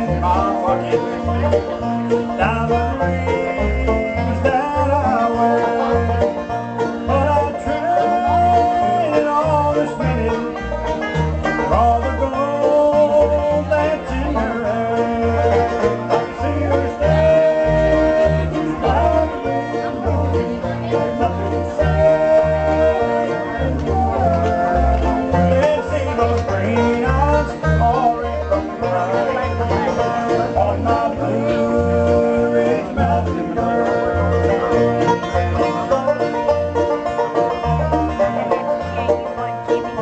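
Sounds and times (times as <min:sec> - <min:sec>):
acoustic guitars: 0:00.0 - 0:40.0
banjo picking: 0:00.0 - 0:40.0
pulsing bass line: 0:00.0 - 0:40.0.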